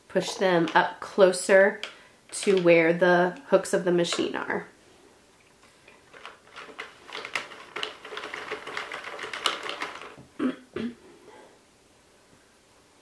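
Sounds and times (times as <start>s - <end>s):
knitting machine clicking and rattling: 6.0s - 10.2s.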